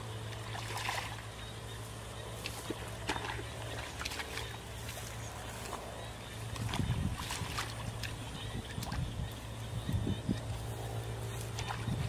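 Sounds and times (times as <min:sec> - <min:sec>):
low hum: 0:00.0 - 0:12.0
short water splashes: 0:00.2 - 0:01.4, 0:02.4 - 0:10.6, 0:11.4 - 0:12.0
hands sloshing in muddy water: 0:00.2 - 0:01.5, 0:02.3 - 0:12.0.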